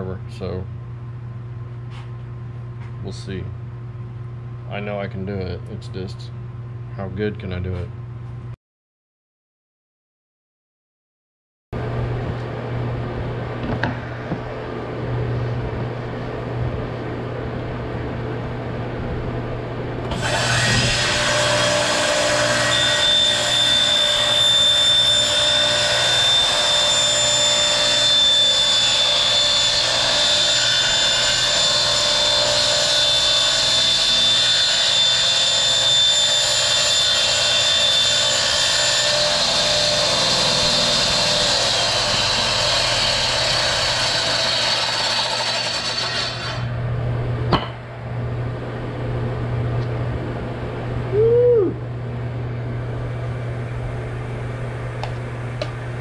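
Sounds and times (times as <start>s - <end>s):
table saw cutting plastic tube: 20.1s - 46.7s.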